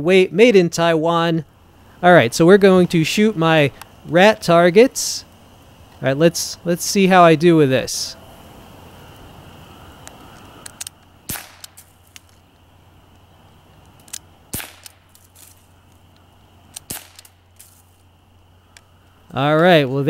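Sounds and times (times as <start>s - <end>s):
faint clicks: 10.0s - 18.1s, 18.7s - 20.0s
bb pistol shots: 10.7s - 11.9s, 14.5s - 15.1s, 16.7s - 17.4s.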